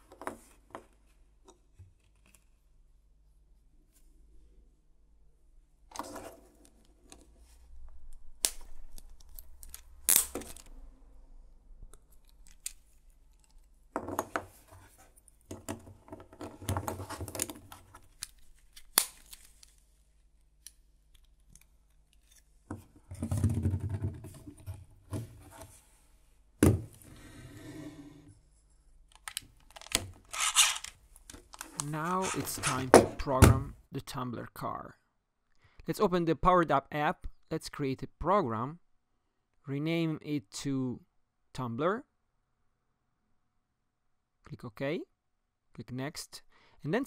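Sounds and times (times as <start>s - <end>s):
plastic pieces snapping: 17.3s - 19.8s, 29.1s - 32.4s
plastic pieces rattling and clicking: 29.1s - 32.4s.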